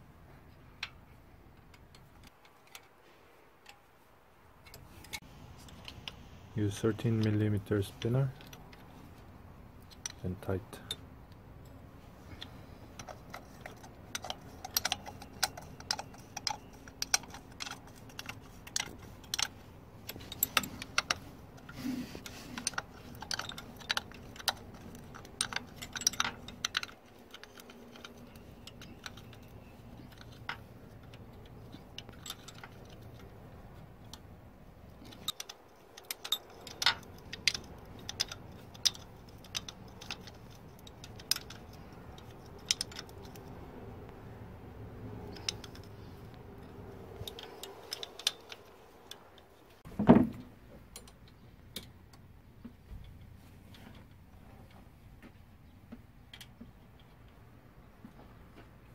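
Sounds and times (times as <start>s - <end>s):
spanner clicking on bolts: 12.3s - 44.1s, 44.9s - 49.8s.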